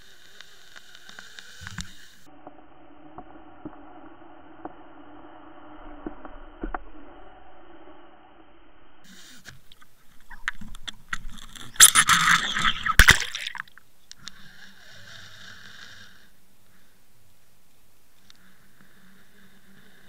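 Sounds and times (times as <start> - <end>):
steady whine: 0.0 - 14.8
water rushing against camera housing: 10.2 - 13.8.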